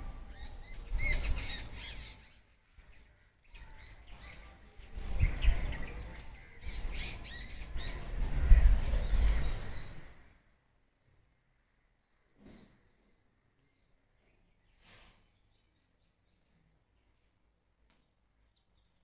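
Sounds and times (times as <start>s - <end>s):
birds chirping and squawking: 0.2s - 10.3s.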